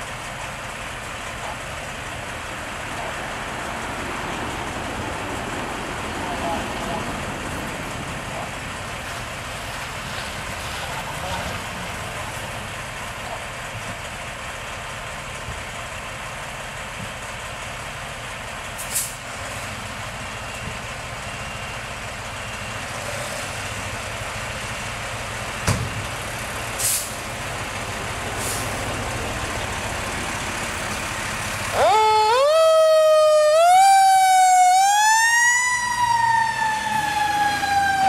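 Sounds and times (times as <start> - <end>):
diesel engines idling: 0.0 - 38.0
air brake hisses: 18.8 - 19.2, 26.8 - 27.2, 28.4 - 28.8.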